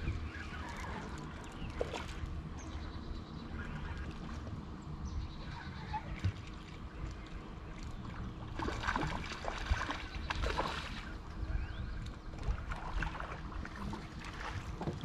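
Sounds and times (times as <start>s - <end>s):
splashes of fish being reeled: 0.0s - 2.4s, 5.8s - 11.6s, 12.4s - 14.8s
water slapping boat hull: 0.0s - 15.0s
wind rumbling on microphone: 0.0s - 15.0s.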